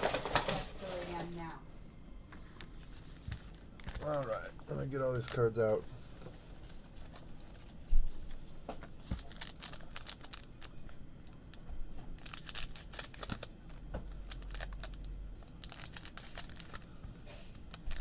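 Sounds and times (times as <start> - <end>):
wrappers crinkling: 3.1 - 5.8, 8.8 - 11.5, 12.1 - 16.9, 17.5 - 18.0
scissors cutting plastic wrappers: 12.2 - 13.5, 14.2 - 16.8, 17.5 - 18.0.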